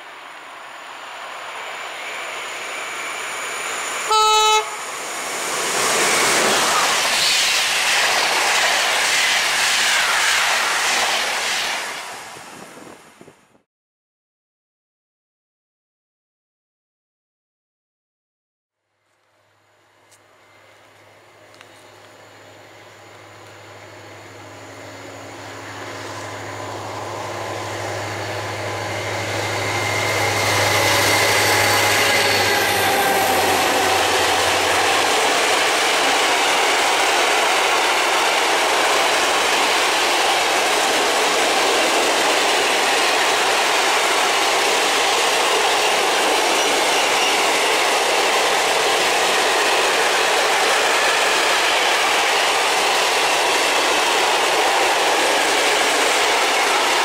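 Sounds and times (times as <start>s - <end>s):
diesel locomotive engine hum: 0.0s - 13.4s, 19.0s - 57.0s
wagon wheels rumbling on rail: 20.6s - 57.0s.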